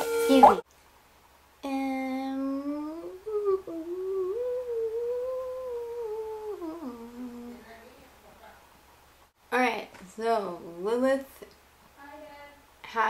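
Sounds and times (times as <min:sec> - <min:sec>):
woman humming a tune: 0:01.6 - 0:08.0.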